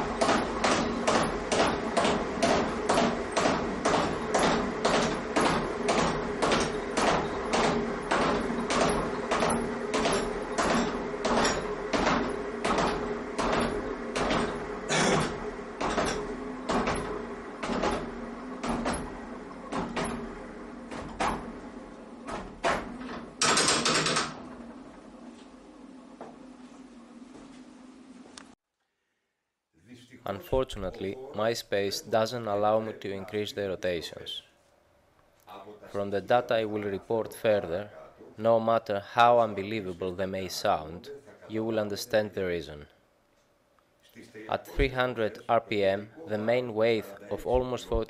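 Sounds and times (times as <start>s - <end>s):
flywheel machine knocking: 0.0s - 25.2s
steady low hum: 0.0s - 48.0s.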